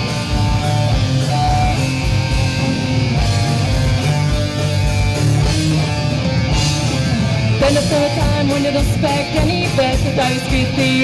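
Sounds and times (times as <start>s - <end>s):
live rock band instrumental: 0.0s - 11.0s.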